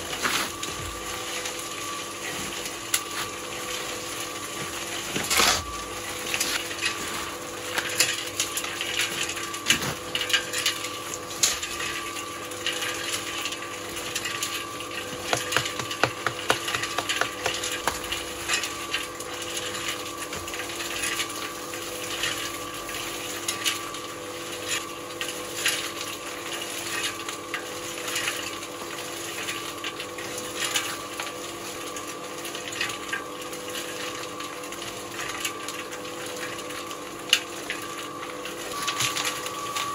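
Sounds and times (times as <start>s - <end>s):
cement mixer motor hum: 0.0s - 22.6s
tools and containers clattering: 12.8s - 18.9s.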